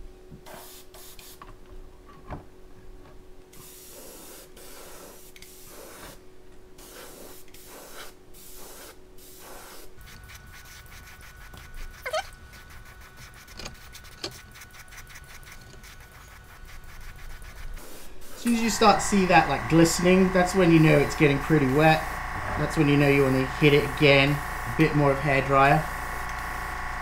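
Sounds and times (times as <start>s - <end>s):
airbrush spraying bursts of hiss: 0.5s - 1.4s, 3.6s - 6.2s, 6.8s - 11.5s, 15.8s - 27.0s
steady hum: 10.0s - 27.0s.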